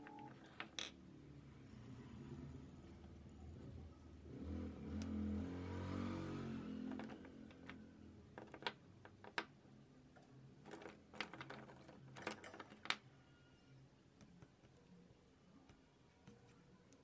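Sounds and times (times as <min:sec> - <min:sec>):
pastels and pencils clicking: 0:06.8 - 0:13.2.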